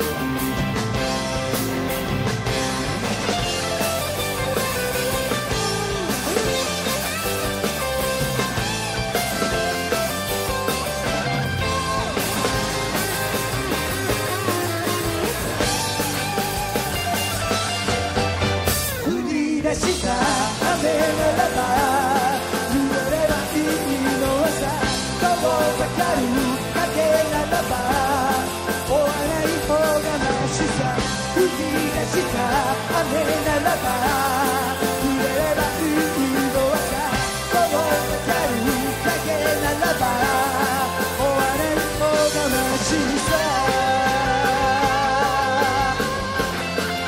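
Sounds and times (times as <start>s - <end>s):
drums: 0.0s - 47.0s
electric guitars: 0.0s - 47.0s
keyboards: 0.0s - 47.0s
live rock band playing: 0.0s - 47.0s
male lead vocal: 19.0s - 47.0s
man singing into a microphone: 19.0s - 47.0s.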